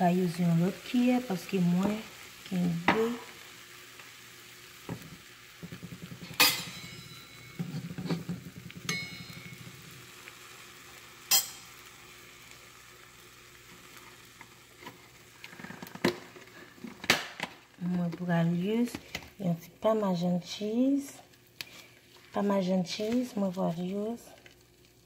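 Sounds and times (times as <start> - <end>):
food sizzling in a pan: 0.0 - 25.0
metallic clinks against pan: 8.9 - 9.6, 11.3 - 11.7.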